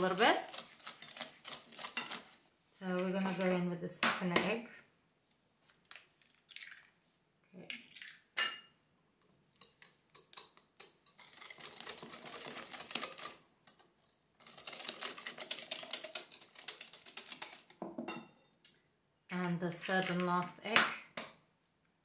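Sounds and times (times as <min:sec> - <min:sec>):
whisk clicking against bowl: 0:14.4 - 0:17.8.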